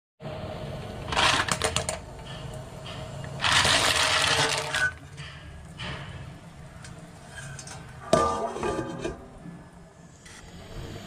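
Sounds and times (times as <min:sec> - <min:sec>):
clam shells clattering in pot: 0:03.4 - 0:04.9.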